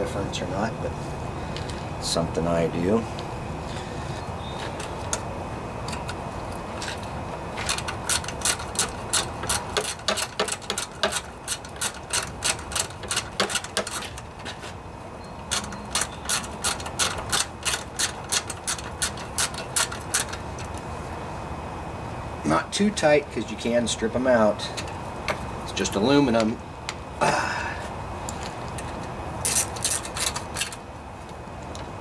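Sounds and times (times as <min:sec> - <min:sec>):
ratchet wrench clicking: 0:07.6 - 0:14.2, 0:15.5 - 0:20.4.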